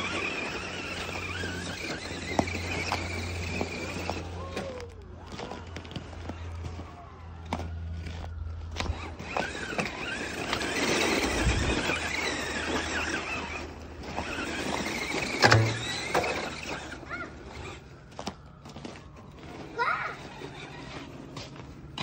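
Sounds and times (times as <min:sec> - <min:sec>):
electric toy car motor whining: 0:00.0 - 0:06.8, 0:07.5 - 0:22.0
wheels spinning through snow: 0:00.0 - 0:22.0.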